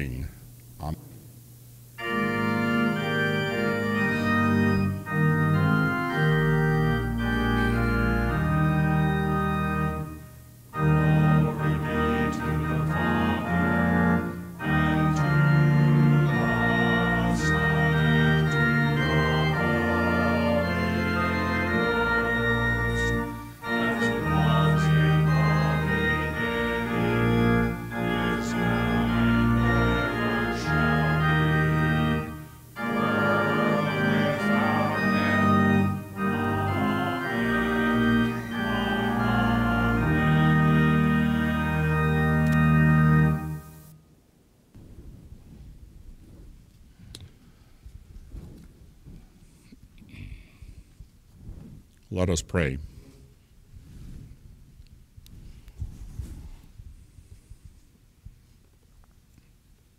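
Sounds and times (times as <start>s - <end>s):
organ playing held chords: 1.6s - 44.0s.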